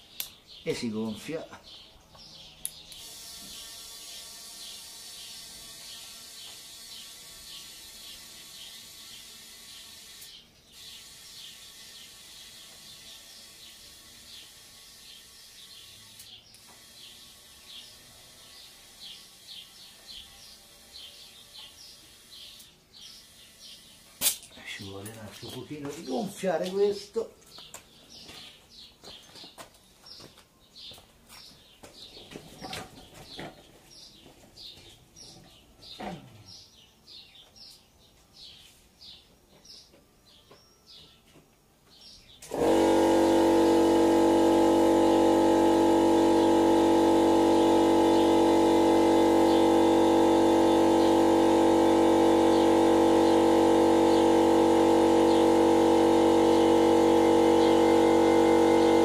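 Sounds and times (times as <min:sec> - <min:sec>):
air compressor humming: 0:00.0 - 0:25.0, 0:42.4 - 0:59.0
bird chirping: 0:00.0 - 0:42.5.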